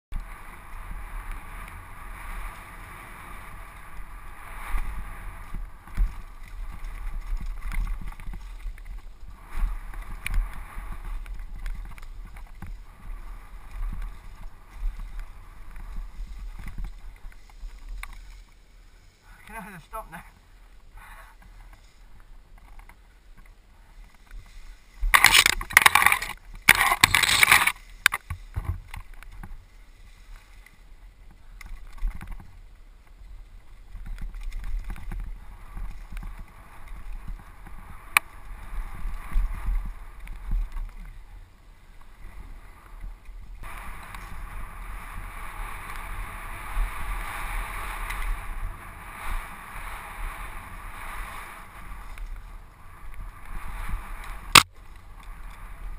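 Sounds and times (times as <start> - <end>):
wind noise on microphone: 0.1 - 18.5, 20.9 - 55.9
bike rumbling and rattling: 0.1 - 55.9
rough rustling and clattering: 4.7 - 18.6, 21.3 - 33.2.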